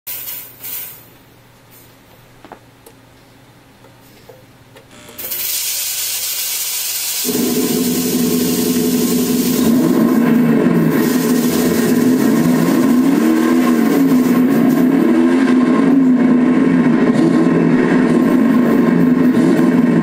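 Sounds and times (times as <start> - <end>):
loud steady rumble with hum: 0.1 - 20.0
smoke machine hissing: 4.9 - 15.0.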